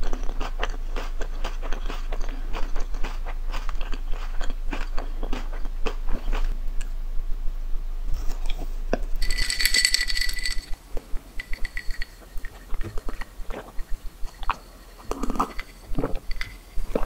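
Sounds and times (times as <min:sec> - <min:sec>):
drinking glass clinking: 0:09.2 - 0:10.8, 0:11.4 - 0:12.5.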